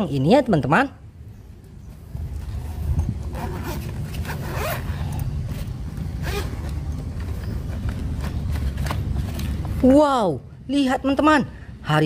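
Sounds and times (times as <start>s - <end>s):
zipper rasping open: 2.3s - 7.6s.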